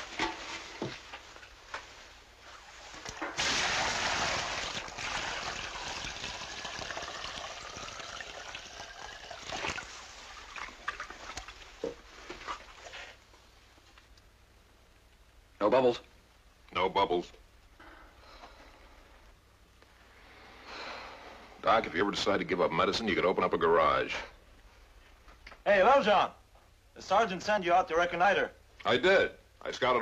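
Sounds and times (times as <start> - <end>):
water sloshing in a bucket: 2.6 - 13.2.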